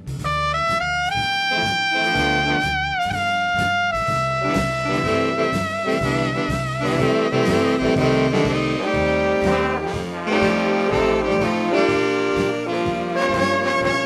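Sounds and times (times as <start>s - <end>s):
jazz instrumental with horn lead: 0.0s - 14.0s.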